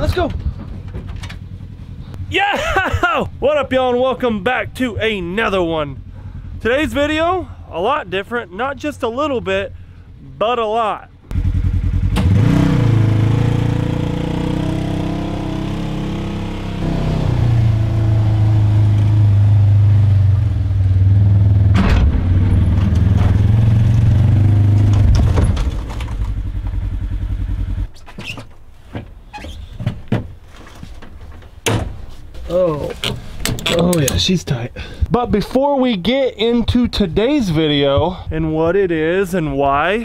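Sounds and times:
utility vehicle engine revving: 11.2s - 28.0s.

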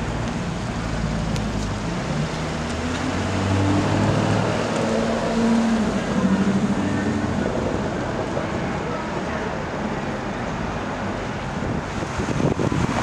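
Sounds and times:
street traffic noise: 0.0s - 13.0s
car engine pulling away: 0.1s - 7.8s.

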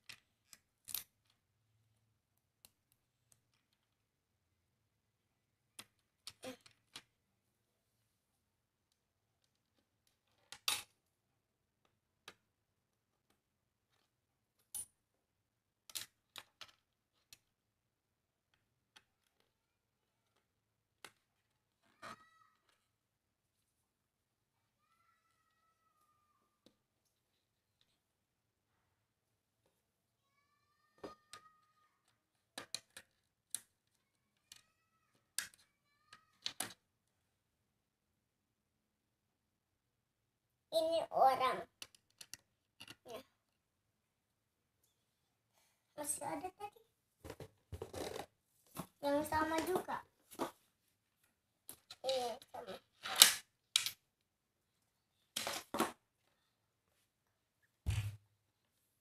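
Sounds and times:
plastic toy parts clicking: 31.0s - 36.8s, 41.8s - 43.1s, 53.0s - 54.0s
plastic pieces clicking: 41.8s - 43.1s, 53.0s - 54.0s.

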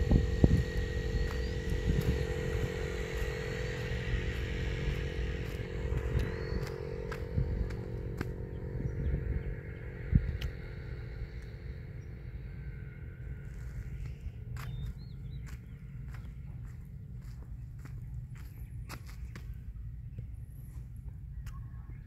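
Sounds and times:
motor humming: 0.0s - 22.0s.

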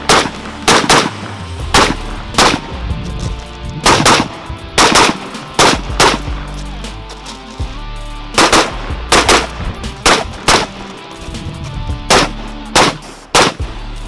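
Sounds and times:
rifle shots: 0.0s - 2.8s, 3.8s - 6.4s, 8.4s - 10.9s, 12.1s - 13.7s.

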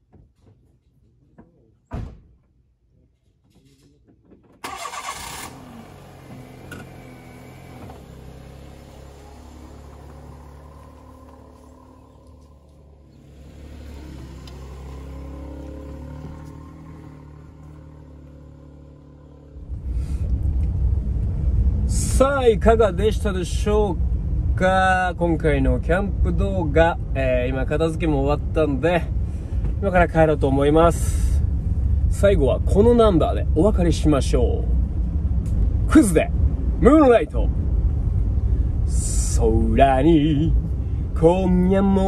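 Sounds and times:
car engine cranking: 4.4s - 19.0s
engine drone inside car cabin: 4.6s - 42.0s
car engine running: 4.7s - 42.0s.

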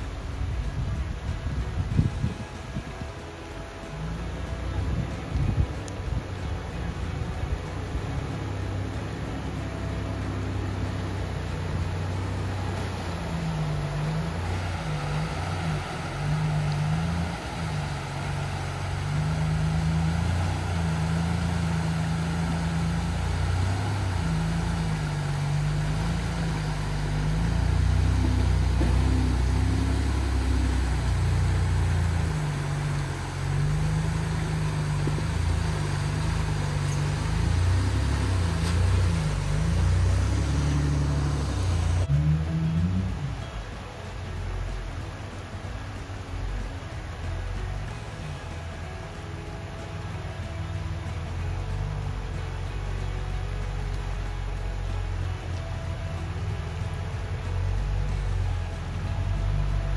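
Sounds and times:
vehicle engine pulling: 0.0s - 59.9s
water rushing and splashing: 0.0s - 59.9s.

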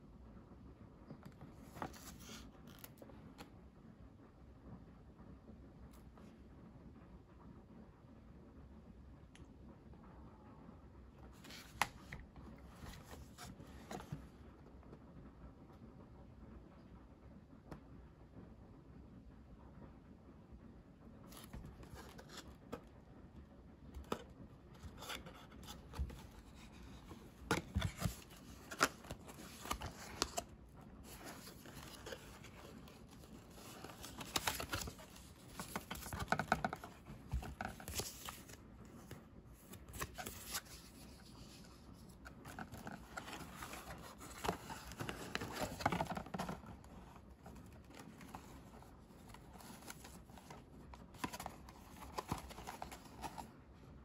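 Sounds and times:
rustling of cardboard and paper: 11.3s - 14.4s, 21.3s - 22.9s, 23.9s - 53.6s.

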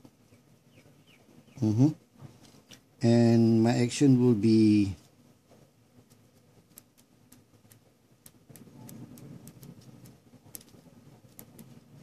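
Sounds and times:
pen strokes rubbing: 6.0s - 12.0s
pen ticking on paper: 6.0s - 12.0s.

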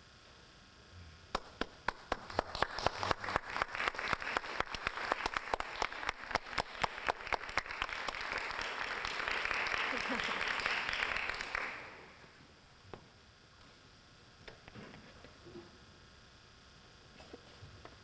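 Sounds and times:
nearby person clapping: 1.3s - 12.0s
audience applauding: 1.8s - 12.2s.

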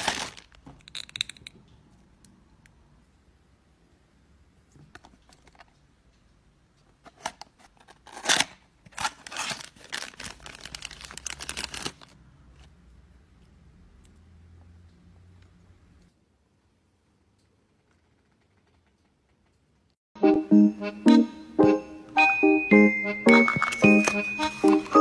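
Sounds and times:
plastic packaging crinkling: 0.0s - 1.4s, 7.8s - 12.2s, 23.4s - 25.0s.

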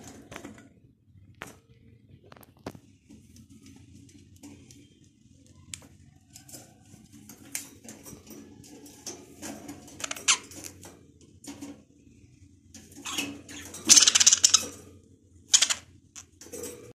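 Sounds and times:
budgerigars chirping and chattering: 13.0s - 14.7s.

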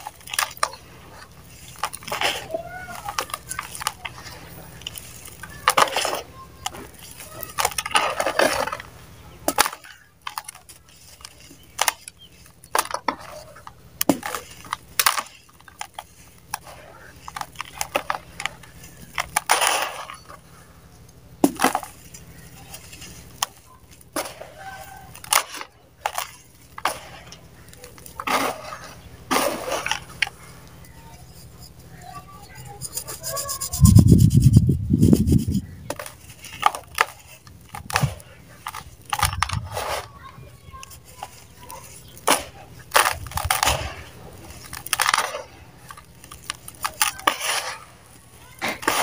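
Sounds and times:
dry mud crunching by hand: 0.0s - 20.8s, 21.4s - 49.0s
powder rubbing hiss: 31.1s - 35.7s.

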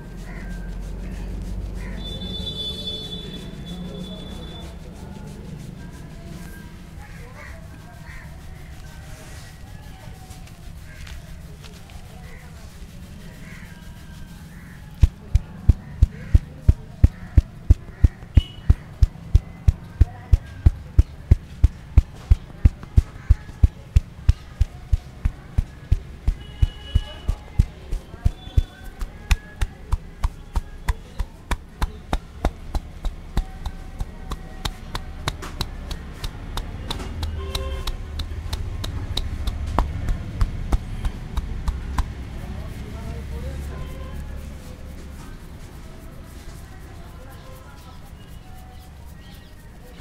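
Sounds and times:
hands rubbing through hair: 0.0s - 50.0s
hands thumping on scalp: 14.9s - 42.5s.

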